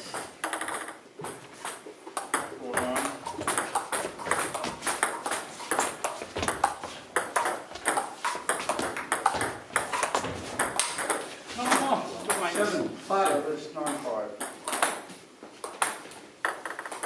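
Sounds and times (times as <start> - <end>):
table tennis ball clicking: 0.4 - 1.0, 15.8 - 17.0.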